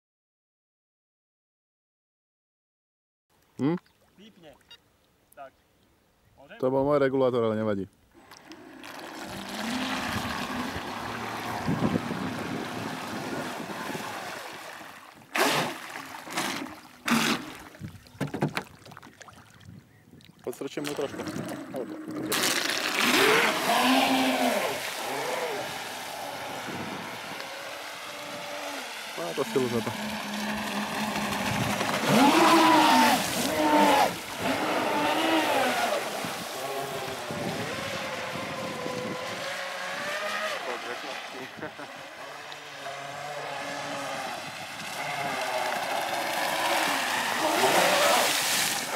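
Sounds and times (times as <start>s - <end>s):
rc boat rushing across water: 8.2s - 18.6s, 20.7s - 48.9s
electric motors whining: 23.0s - 36.0s.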